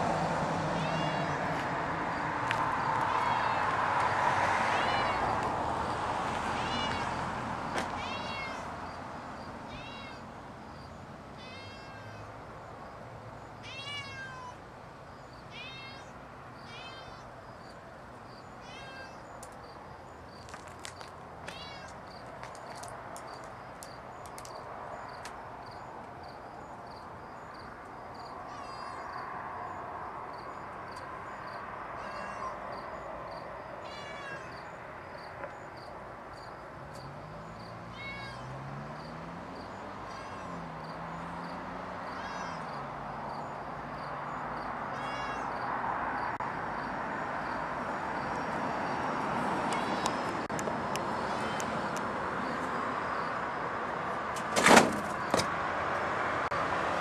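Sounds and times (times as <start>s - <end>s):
cat meowing: 0.8s - 1.4s, 3.1s - 3.7s, 4.7s - 5.3s, 6.6s - 7.2s, 8.0s - 8.7s, 9.7s - 10.2s, 11.4s - 12.3s, 13.6s - 14.6s, 15.5s - 17.3s, 18.6s - 19.2s, 21.5s - 22.0s, 28.5s - 29.1s, 32.0s - 32.6s, 33.8s - 34.7s, 37.9s - 38.5s, 40.1s - 40.6s, 42.0s - 42.8s, 44.9s - 45.6s, 51.2s - 51.7s.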